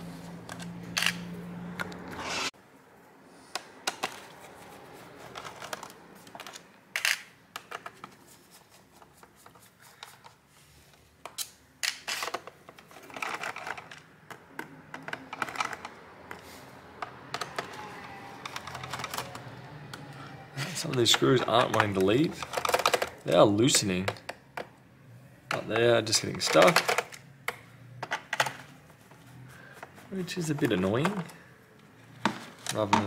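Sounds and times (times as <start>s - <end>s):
screws clicking in plastic tray: 18.4s - 19.5s.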